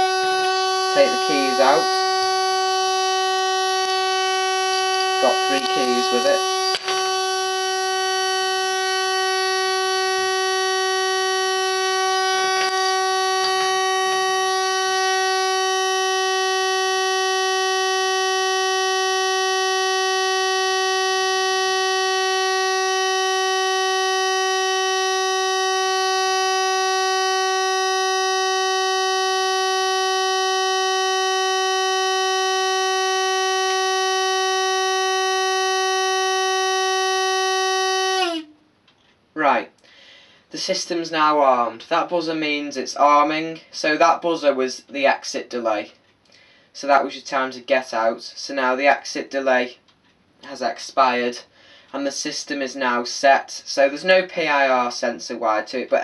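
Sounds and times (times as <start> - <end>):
alarm panel buzzer tone: 0.0 - 38.6.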